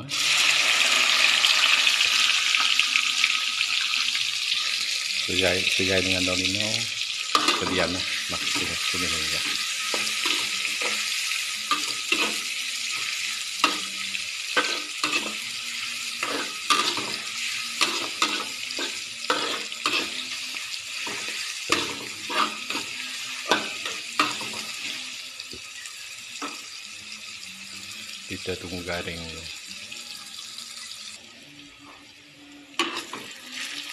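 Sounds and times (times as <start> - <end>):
food sizzling in hot oil: 0.0 - 33.9
utensil scraping wok: 3.5 - 25.2, 32.8 - 33.9.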